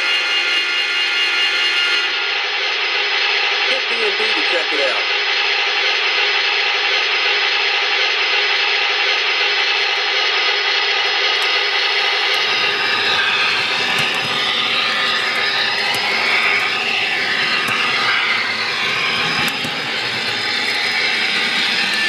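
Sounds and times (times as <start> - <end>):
gas turbine whine: 0.0 - 22.0
model train wheels rolling: 11.0 - 22.0.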